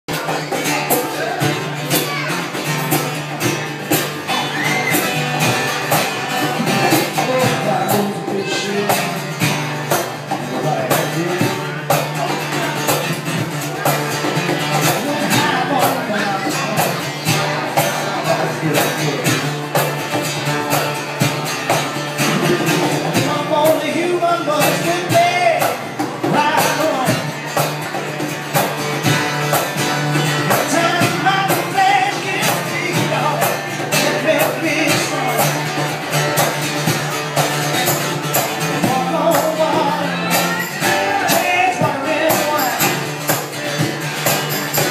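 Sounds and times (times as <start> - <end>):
percussion beat: 0.1 - 44.9
strummed acoustic guitar: 0.1 - 44.9
man singing: 6.3 - 13.4, 14.6 - 19.6, 22.3 - 27.6, 30.4 - 35.9, 38.6 - 43.4.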